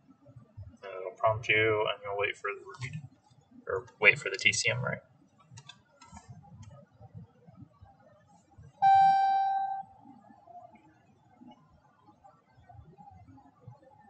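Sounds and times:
faint room noise: 0.0 - 14.0
steady electronic beep: 8.8 - 9.9.

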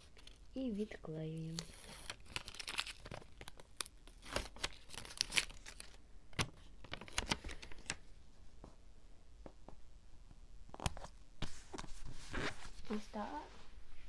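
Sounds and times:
paper crinkling and crackling: 0.0 - 8.1.

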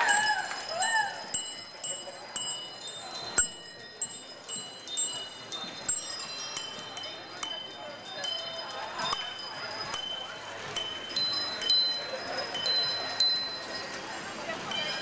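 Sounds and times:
bicycle bells ringing: 0.0 - 15.0.

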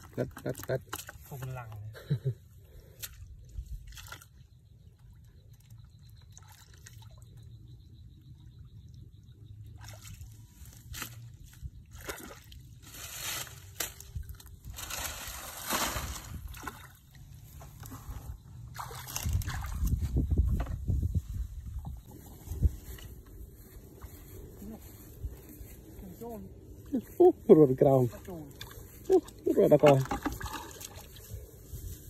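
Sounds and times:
muddy water sloshing: 0.0 - 1.9, 2.8 - 7.6, 9.4 - 31.7
short water splashes: 9.7 - 13.4, 15.0 - 17.2, 18.6 - 20.0, 28.2 - 31.3.

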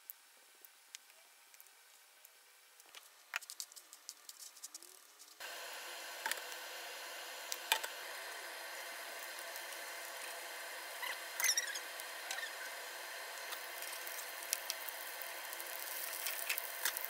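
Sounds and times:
oil sizzling in a frying pan: 5.4 - 17.0.

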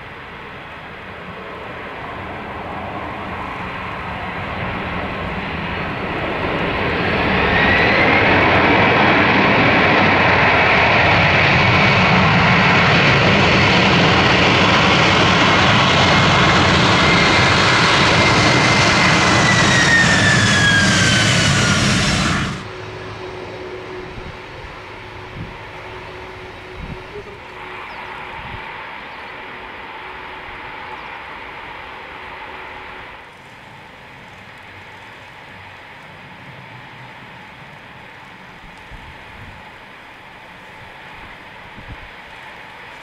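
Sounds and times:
jet engines whining: 1.3 - 33.2.

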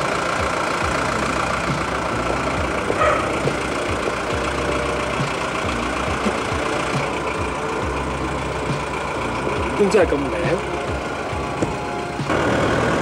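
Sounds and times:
car engine idling: 0.0 - 13.0
irregular low knocks: 1.6 - 9.7, 10.6 - 12.3.

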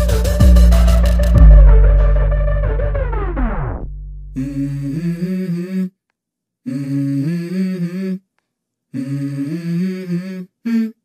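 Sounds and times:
wordless vocal melody: 4.3 - 6.0, 6.7 - 8.2, 8.9 - 11.0.

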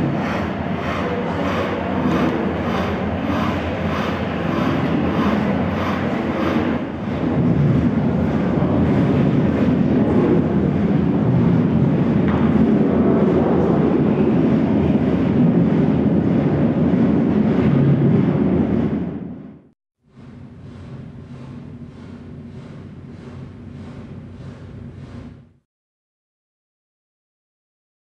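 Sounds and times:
loud steady rumble: 0.0 - 25.6.

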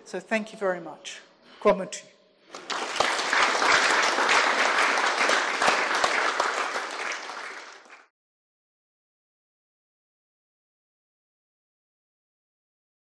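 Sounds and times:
audience applauding: 2.5 - 8.1.

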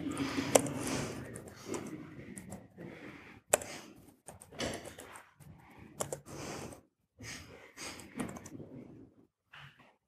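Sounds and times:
typing on a laptop keyboard: 0.4 - 2.6, 3.5 - 5.3, 5.9 - 6.8.

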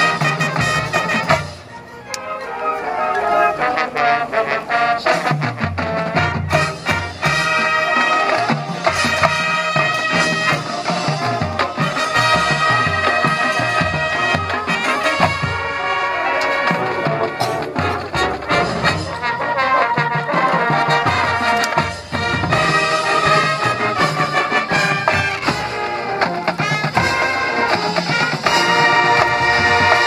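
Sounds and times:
brass holding loud chords: 0.0 - 30.0
drum and percussion hits: 5.3 - 15.6, 20.0 - 30.0.

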